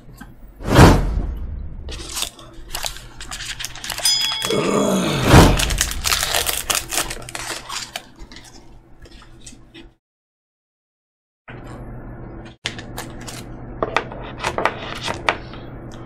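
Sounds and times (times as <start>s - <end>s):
cards and wrappers crinkling: 1.9s - 4.7s, 5.6s - 9.5s.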